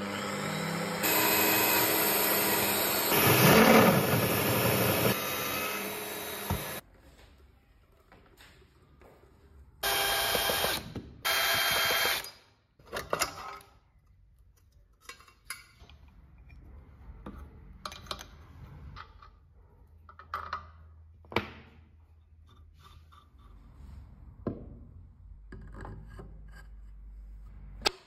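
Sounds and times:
power screwdriver running: 0.0 - 6.8
metal parts clicking and knocking: 12.2 - 16.6.

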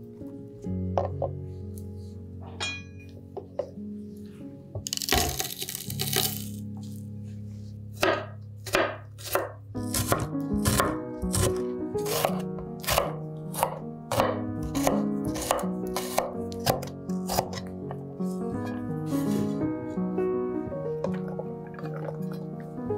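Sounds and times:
background music: 0.0 - 22.9
knife chopping on cutting board: 8.0 - 17.7.

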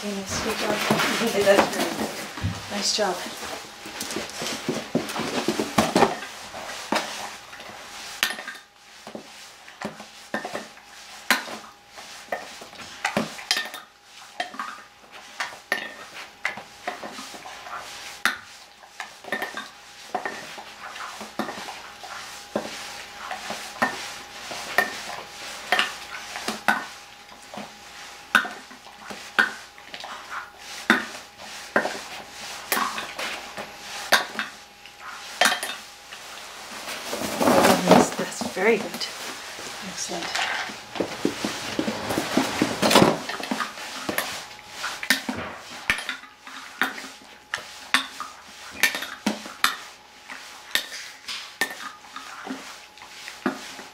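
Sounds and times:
dog eating from metal bowl: 40.2 - 53.6.

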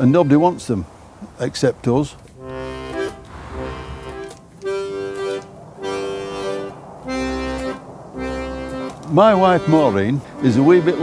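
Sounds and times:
sustained music chords: 2.4 - 11.0.

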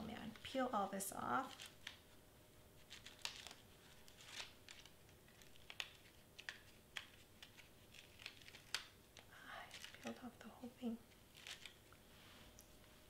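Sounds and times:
fingers peeling paper backing: 1.4 - 2.0, 2.8 - 10.2, 11.1 - 11.9.

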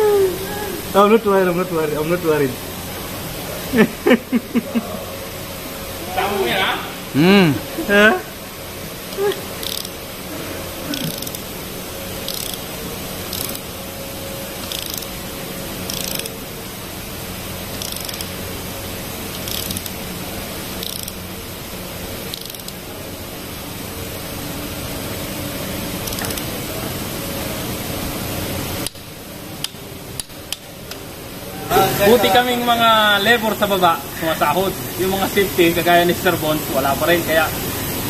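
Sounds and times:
steady background hiss: 0.0 - 38.0
ratchet wrench clicking: 9.1 - 10.0, 10.9 - 11.6, 12.2 - 13.7, 14.6 - 15.2, 15.8 - 16.4, 17.7 - 18.4, 19.3 - 20.0, 20.7 - 21.2, 22.3 - 22.8, 26.0 - 26.5.

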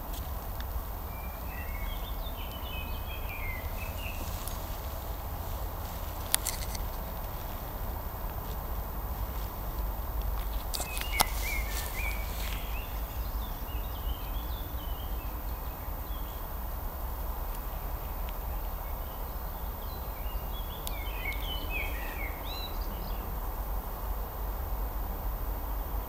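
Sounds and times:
songbirds chirping: 0.0 - 26.0
steady low rumble: 0.0 - 26.0
sharp click: 6.3 - 6.9.

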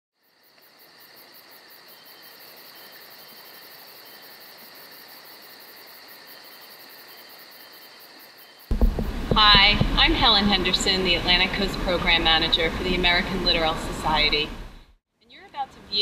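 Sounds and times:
insects chirping: 0.2 - 9.4.

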